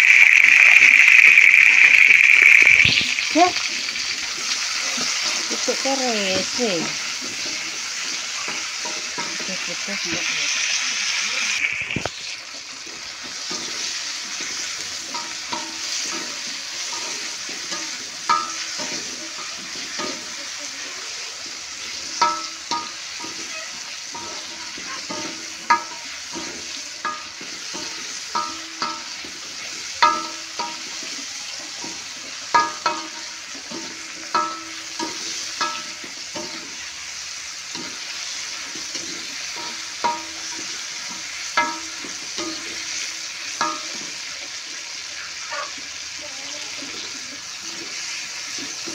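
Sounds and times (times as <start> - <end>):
vegetables sizzling in oil: 0.0 - 48.9
metal spatula clinking on wok: 5.0 - 10.2, 13.4 - 20.6, 22.0 - 36.9, 37.7 - 44.2.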